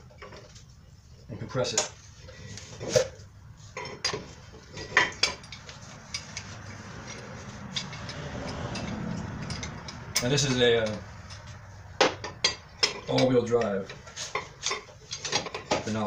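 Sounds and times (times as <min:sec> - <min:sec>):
metal clinks and clanks: 0:03.8 - 0:16.0.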